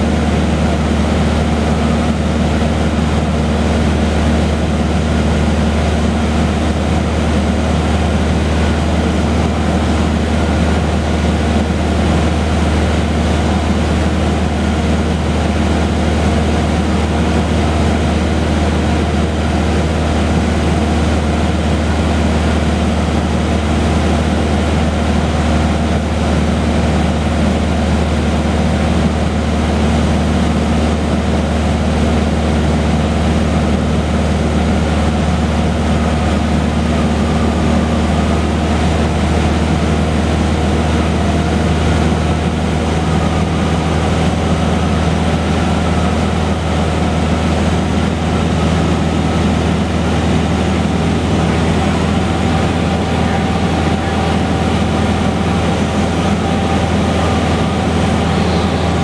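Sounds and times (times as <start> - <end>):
airplane engine drone in cabin: 0.0 - 59.0.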